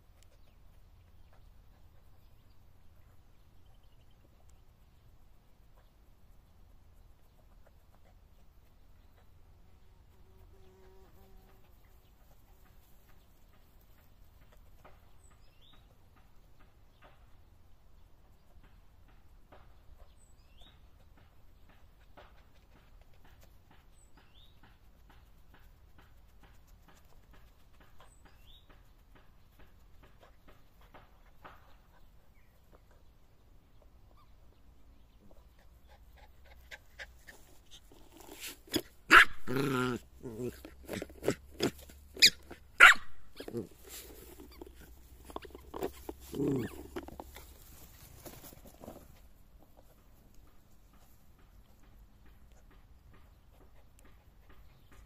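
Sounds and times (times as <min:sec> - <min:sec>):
soft ticks and rustles: 0:00.0 - 0:39.1, 0:40.0 - 0:55.0
dog barking: 0:39.1 - 0:39.7, 0:42.2 - 0:43.2.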